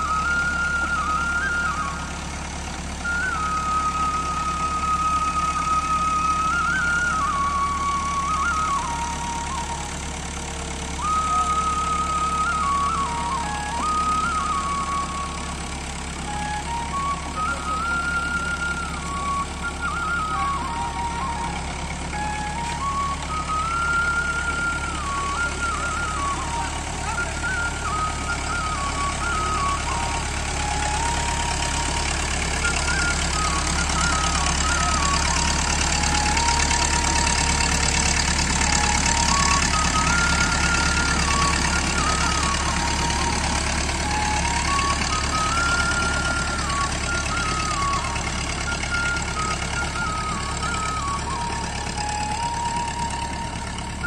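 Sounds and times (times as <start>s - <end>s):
tractor engine under load: 0.0s - 54.0s.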